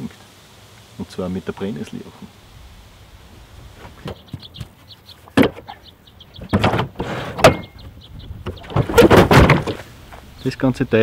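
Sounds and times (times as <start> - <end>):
metal cage knocking and clanking: 6.5 - 7.8.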